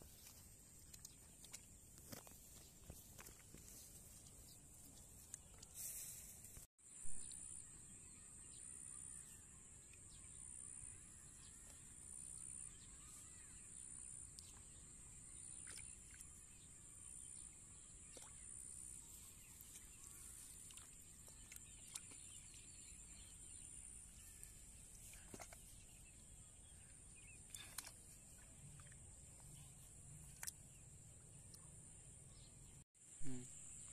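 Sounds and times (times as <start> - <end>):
hands splashing in muddy water: 19.6 - 22.7.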